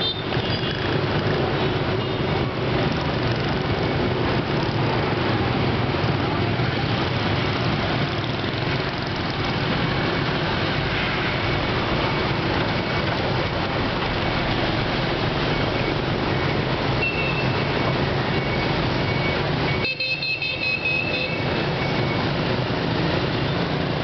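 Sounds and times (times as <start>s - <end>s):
street traffic: 0.0s - 24.0s
vehicle horn beeping: 17.0s - 17.6s, 19.8s - 21.5s.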